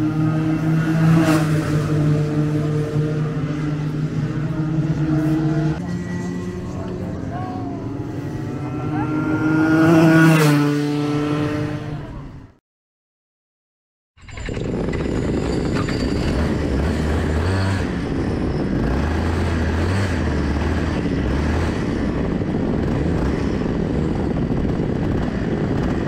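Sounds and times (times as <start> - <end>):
racing kart engine: 0.0 - 12.6, 14.2 - 26.0.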